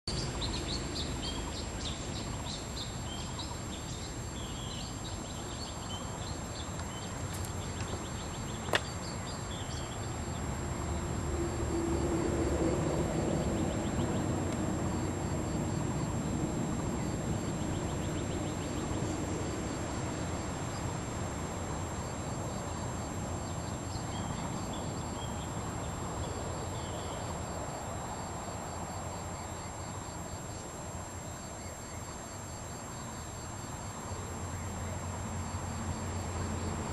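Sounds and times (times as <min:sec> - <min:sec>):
small birds chirping: 0:00.0 - 0:10.6
background hiss: 0:00.1 - 0:12.0, 0:12.7 - 0:36.9.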